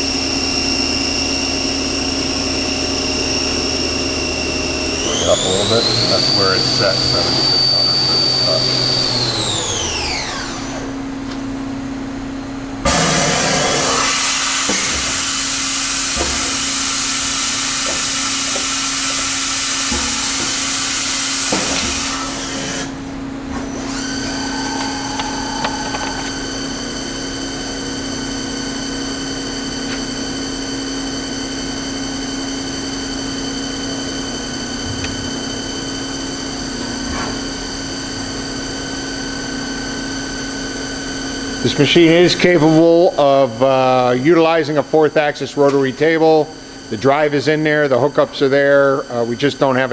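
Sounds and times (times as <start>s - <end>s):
machine hum: 0.0s - 49.7s
high-pitched machine whine: 0.0s - 49.9s.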